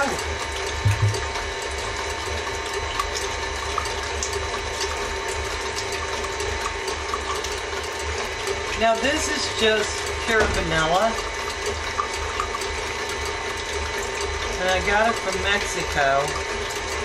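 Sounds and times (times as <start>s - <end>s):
stand mixer whisking: 0.0s - 17.0s
low thump: 0.8s - 1.3s.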